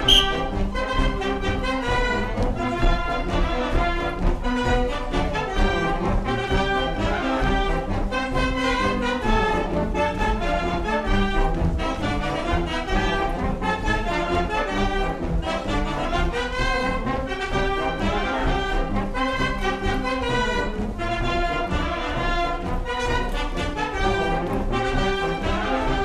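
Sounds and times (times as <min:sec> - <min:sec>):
brass band dance music: 0:00.0 - 0:26.0.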